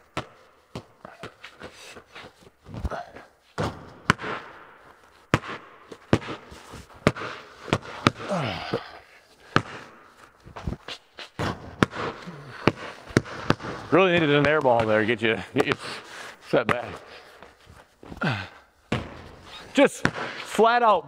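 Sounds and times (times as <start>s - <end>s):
balls striking backboard and rim: 0.1s - 1.4s, 3.6s - 4.6s, 5.3s - 8.9s, 9.5s - 10.0s, 11.4s - 16.0s, 16.6s - 17.0s, 18.9s - 20.6s
basketballs bouncing on concrete: 0.1s - 2.1s, 2.7s - 20.8s.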